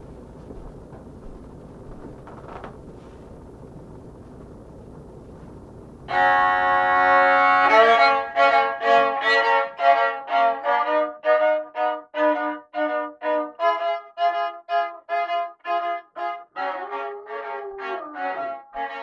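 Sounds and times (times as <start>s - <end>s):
solo violin bowed: 6.1s - 19.0s.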